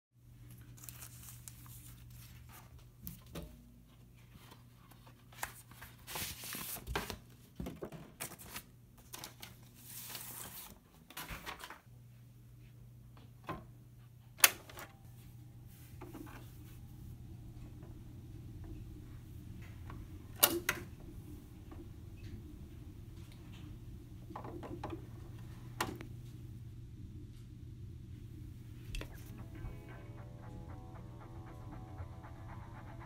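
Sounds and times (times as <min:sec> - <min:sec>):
low steady hum: 0:12.2 - 0:33.0.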